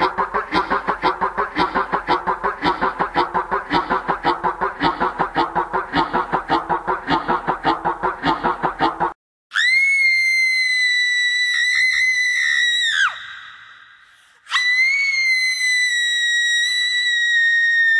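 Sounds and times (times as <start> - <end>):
shrill scream sound effect: 9.5 - 13.9, 14.5 - 17.9.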